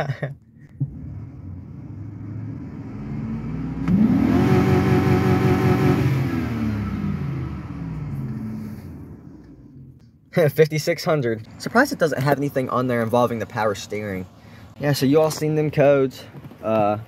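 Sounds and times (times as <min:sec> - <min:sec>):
vehicle engine revving: 0:00.8 - 0:10.0.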